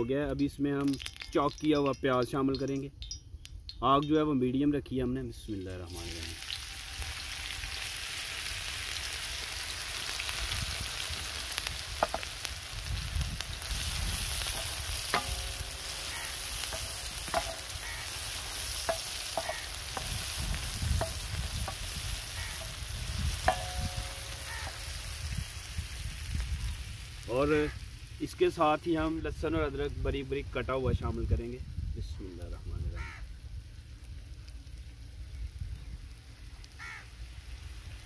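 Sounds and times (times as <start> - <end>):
onions sizzling in hot oil: 0.5 - 3.8, 5.6 - 38.0
spatula knocking on griddle: 14.5 - 22.8, 23.4 - 24.8.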